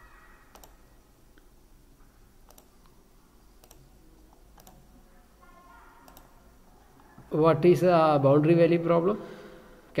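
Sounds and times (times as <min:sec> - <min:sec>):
faint computer mouse clicks: 0:02.4 - 0:03.0, 0:03.6 - 0:04.8.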